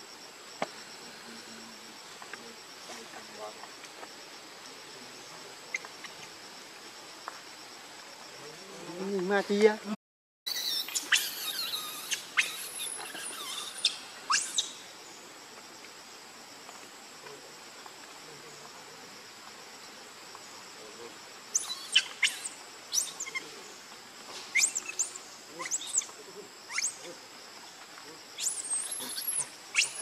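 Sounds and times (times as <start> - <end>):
faint high insect hum: 0.0 - 30.0
high-pitched chirps and squeaks: 10.5 - 14.8, 21.5 - 23.5, 24.5 - 26.1, 26.7 - 27.1, 28.4 - 30.0.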